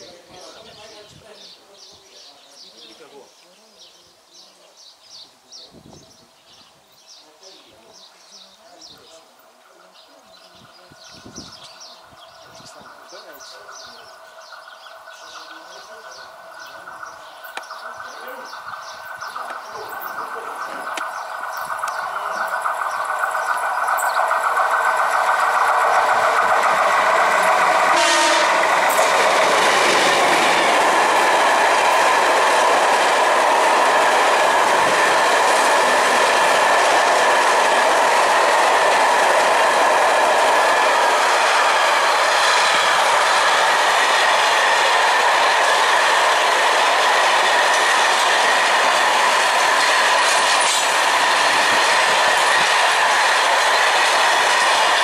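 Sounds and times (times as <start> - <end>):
freight train passing: 0.0 - 5.0, 5.7 - 55.0
wheels clicking over rail joints: 19.3 - 28.0.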